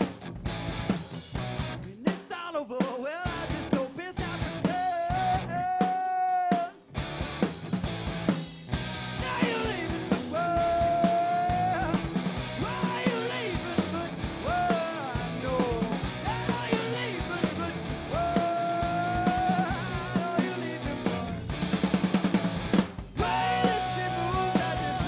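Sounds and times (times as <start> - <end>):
bass guitar: 0.0 - 2.0, 3.3 - 5.8, 6.9 - 25.0
electric guitar: 0.0 - 2.0, 3.3 - 5.8, 6.8 - 25.0
drum kit: 0.0 - 25.0
man singing long notes: 2.2 - 6.7, 9.2 - 12.0, 12.6 - 21.4, 23.2 - 25.0.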